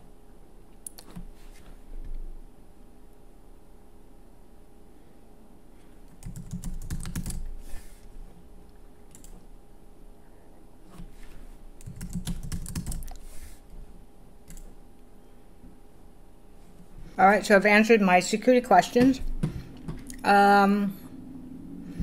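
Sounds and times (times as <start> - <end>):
keyboard typing: 6.1 - 7.4, 11.8 - 13.2.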